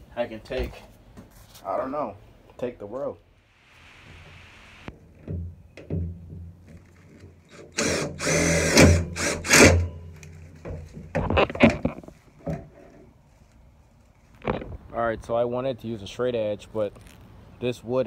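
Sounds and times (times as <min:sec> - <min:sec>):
impact driver driving screw: 0:07.5 - 0:09.9.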